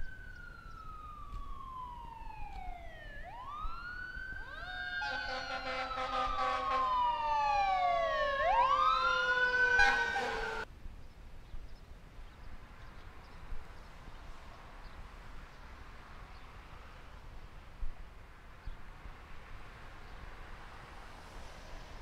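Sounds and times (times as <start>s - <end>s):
emergency sirens wailing: 0.0s - 10.7s.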